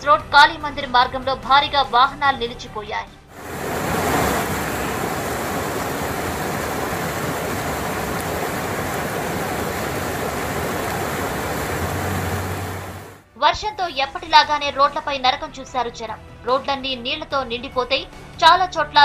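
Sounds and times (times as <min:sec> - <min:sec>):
heavy rain: 0:03.4 - 0:13.2
road traffic: 0:03.4 - 0:13.2
running floodwater: 0:03.4 - 0:13.2.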